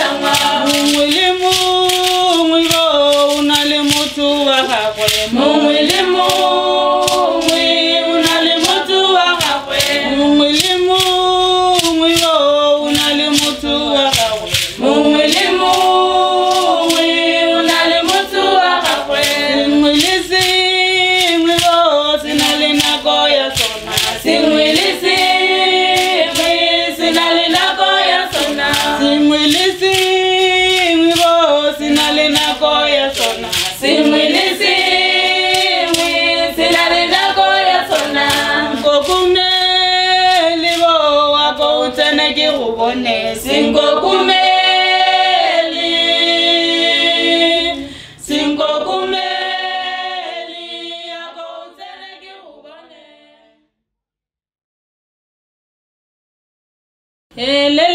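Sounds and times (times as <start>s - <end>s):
percussive beat: 0.0s - 52.4s
group singing call-and-response: 0.0s - 53.7s, 57.4s - 57.9s.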